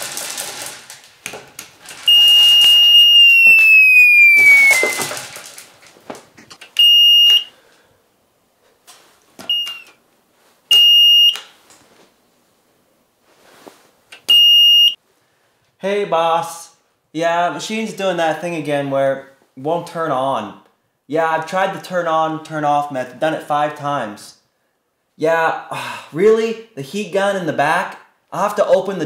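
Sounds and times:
short electronic beeps: 0:02.1 - 0:05.0
electronic beep sliding down: 0:02.1 - 0:05.1.

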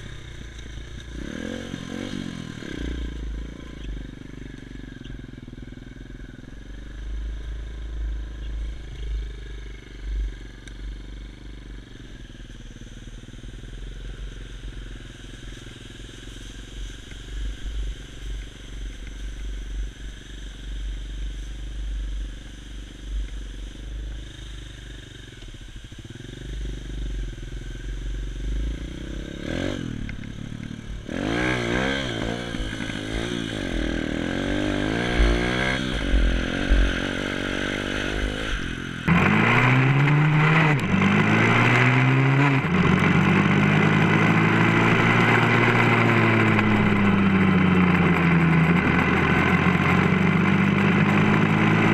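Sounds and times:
motorbike engine revving: 0:00.0 - 0:07.2, 0:25.9 - 0:51.9.

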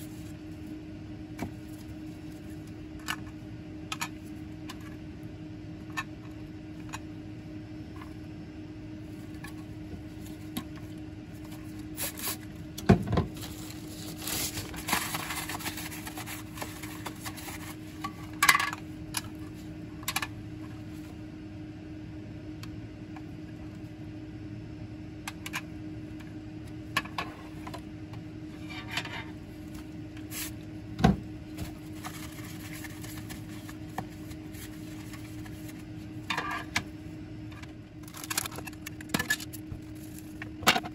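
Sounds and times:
steady low hum: 0:00.0 - 0:40.9
tissue paper rustling: 0:13.3 - 0:18.0, 0:31.6 - 0:35.8.

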